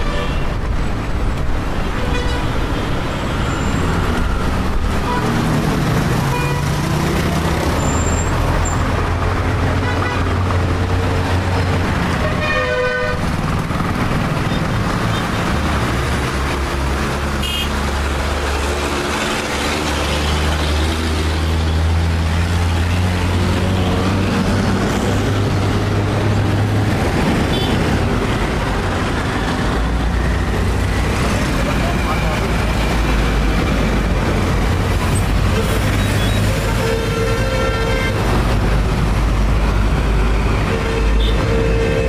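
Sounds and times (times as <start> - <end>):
vehicle engines running: 0.4 - 42.0
horn tooting: 12.2 - 13.3, 17.4 - 17.7, 35.5 - 38.3, 40.6 - 42.0.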